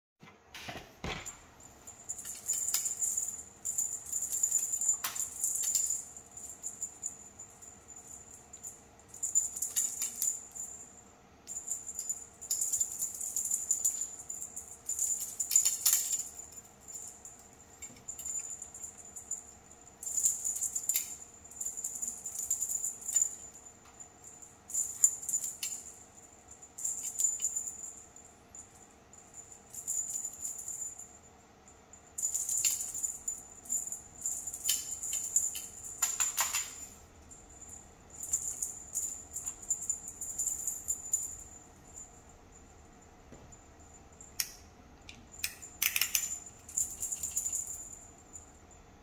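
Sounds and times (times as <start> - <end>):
feather toy rattling rustle: 1.9 - 8.0.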